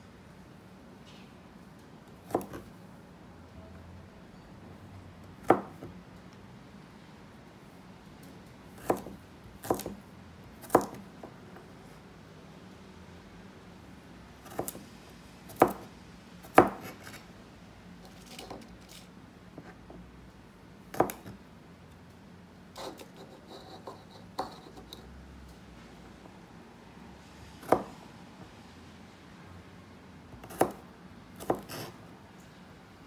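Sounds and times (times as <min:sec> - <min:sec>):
knife chopping on cutting board: 0:02.3 - 0:02.7, 0:08.8 - 0:10.0, 0:10.6 - 0:11.0, 0:14.5 - 0:14.8, 0:16.5 - 0:17.1, 0:20.9 - 0:21.3, 0:27.6 - 0:27.9, 0:30.4 - 0:30.8, 0:31.4 - 0:32.0.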